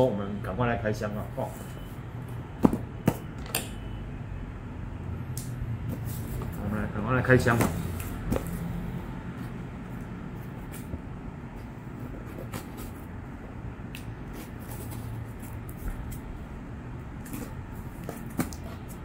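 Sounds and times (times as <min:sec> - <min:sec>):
steady low hum: 0:00.0 - 0:19.0
scraping and clicking on cardboard box: 0:12.1 - 0:13.1, 0:17.2 - 0:19.0.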